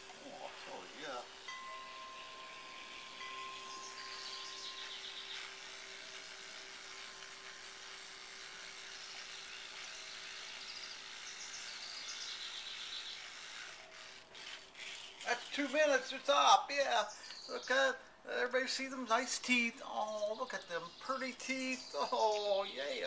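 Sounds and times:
electric toothbrush humming: 0.0s - 17.1s.

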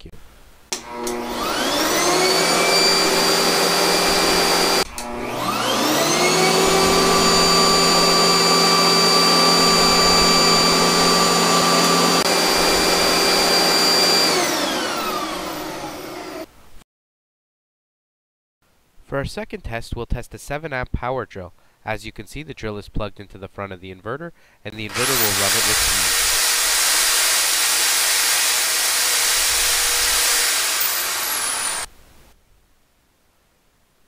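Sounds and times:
vacuum cleaner motor whining: 0.7s - 16.5s, 24.9s - 31.9s.

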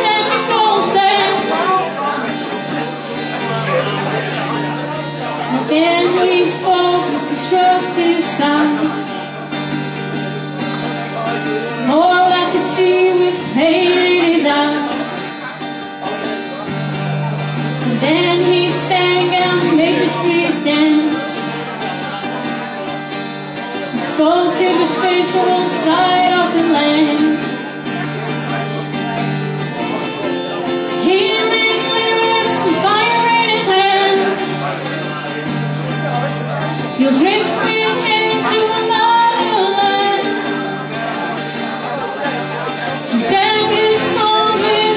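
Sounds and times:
woman singing slow song: 0.0s - 2.0s, 5.5s - 9.1s, 11.8s - 15.2s, 17.8s - 21.6s, 24.0s - 27.6s, 31.0s - 34.8s, 37.0s - 40.8s, 43.1s - 44.9s
strummed acoustic guitar: 0.0s - 44.9s.

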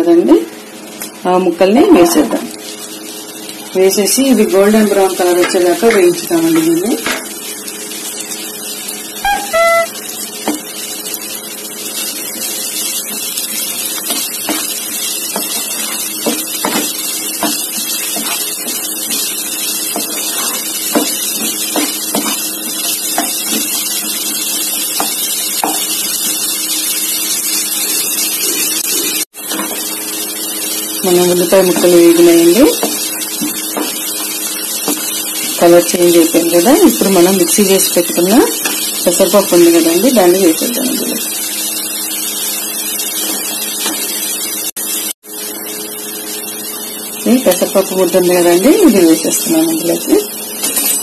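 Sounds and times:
onions sizzling in oil: 0.0s - 51.0s
spatula scraping and tapping: 13.9s - 19.2s, 19.9s - 24.3s, 25.0s - 25.9s.

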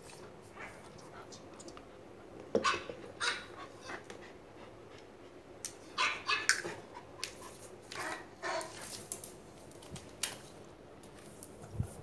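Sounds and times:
dog barking: 6.0s - 6.5s.

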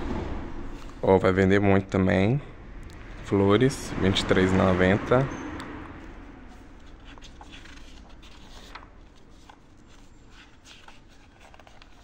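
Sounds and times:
paper pages rustling: 6.5s - 12.0s.

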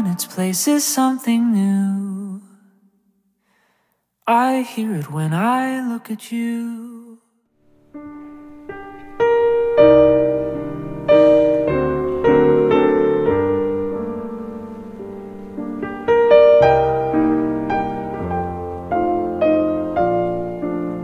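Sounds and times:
piano playing chords: 7.7s - 21.0s.

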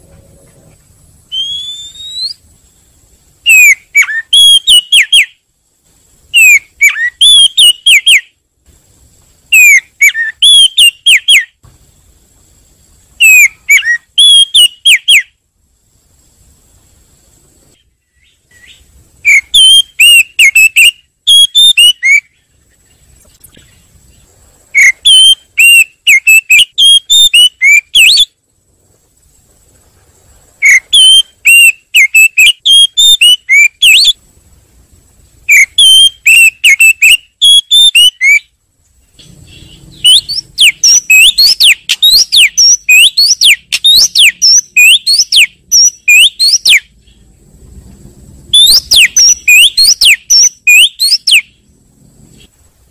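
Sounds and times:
bird whistled calls: 1.3s - 2.5s, 3.4s - 5.4s, 6.3s - 8.4s, 9.5s - 11.6s, 13.2s - 15.4s, 17.7s - 22.9s, 24.7s - 28.4s, 30.6s - 34.2s, 35.5s - 38.5s, 39.2s - 47.2s, 48.5s - 51.6s.

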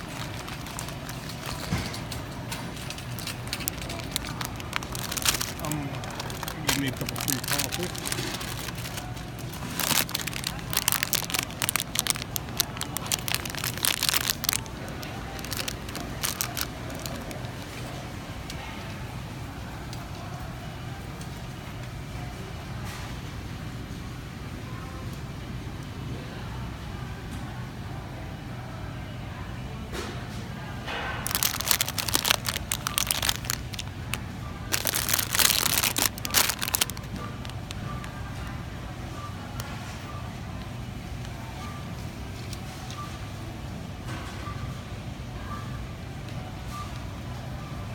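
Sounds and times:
plastic wrapper crinkling: 0.0s - 18.0s, 31.2s - 38.5s.

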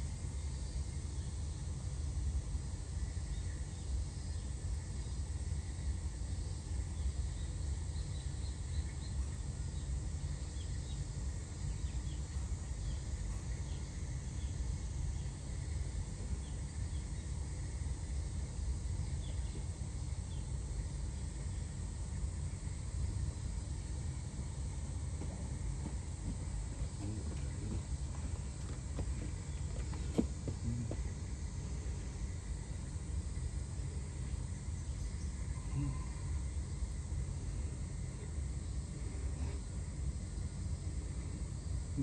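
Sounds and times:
low outdoor rumble: 0.0s - 42.0s.

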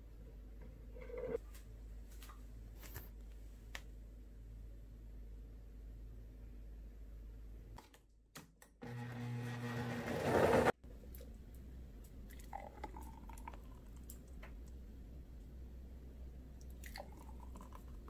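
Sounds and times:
blender motor running: 8.8s - 10.7s
juice pouring into glass: 12.3s - 14.2s, 16.7s - 18.0s.

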